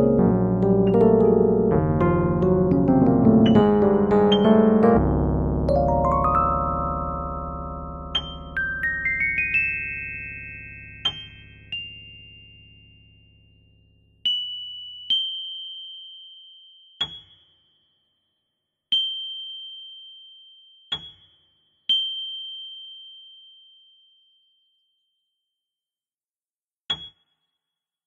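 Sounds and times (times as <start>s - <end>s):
low held keyboard chord: 0.0s - 10.4s.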